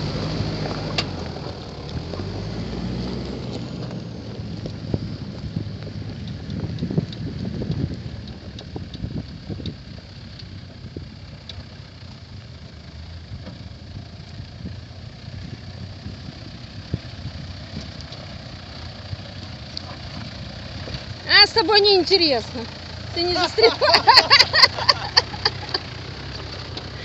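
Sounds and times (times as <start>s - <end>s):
car engine running at low revs: 0.0s - 27.0s
wind buffeting microphone: 4.0s - 11.4s, 13.3s - 22.1s
small clicks from stony ground: 4.6s - 12.8s, 17.8s - 18.4s, 19.7s - 21.1s, 24.4s - 27.0s.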